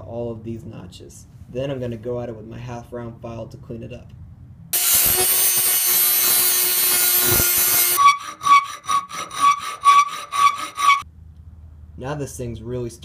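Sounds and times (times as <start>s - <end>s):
file strokes ringing on steel: 4.8s - 11.0s
rotary tool cutting steel: 4.8s - 11.0s.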